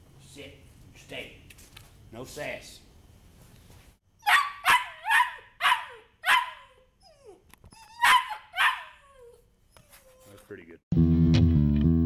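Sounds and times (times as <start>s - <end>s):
puppy barking: 4.2s - 6.8s, 7.9s - 9.3s.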